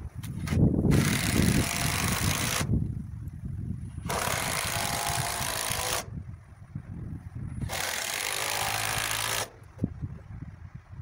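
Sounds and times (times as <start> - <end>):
impact driver driving into wood: 4.0 - 6.1, 7.6 - 9.6.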